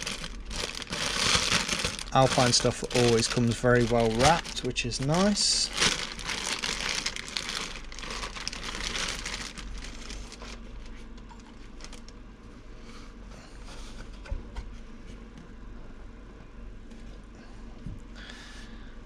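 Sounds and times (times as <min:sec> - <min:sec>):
plastic and foam wrapping crinkling: 0:00.0 - 0:12.1.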